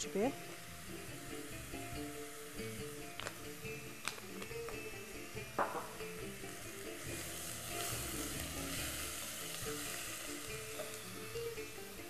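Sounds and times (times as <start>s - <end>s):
background music: 0.0s - 12.0s
spices sizzling in hot oil: 0.0s - 12.0s
short knock: 5.6s - 6.0s.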